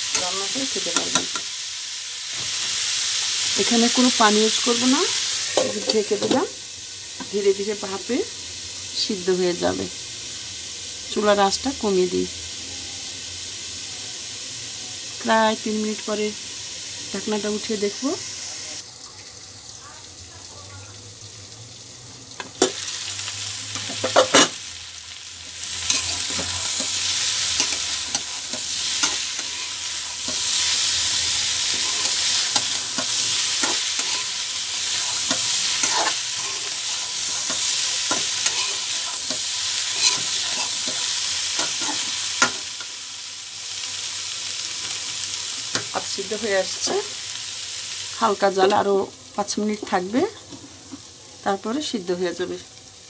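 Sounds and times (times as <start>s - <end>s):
vegetables sizzling in a pan: 0.0s - 53.0s
metal spatula scraping: 25.6s - 42.7s.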